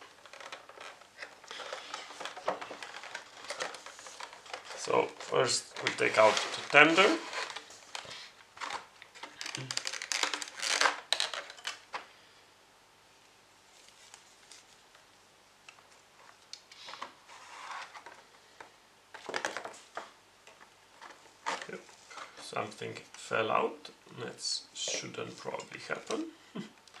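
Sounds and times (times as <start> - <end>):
plastic packaging crinkling: 0.0 - 12.1, 19.1 - 22.6.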